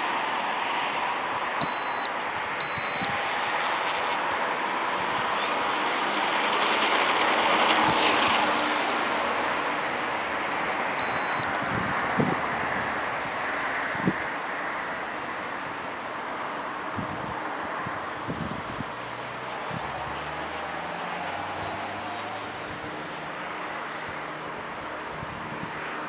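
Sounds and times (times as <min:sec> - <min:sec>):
short high beeps: 0:01.6 - 0:03.1, 0:11.0 - 0:11.5.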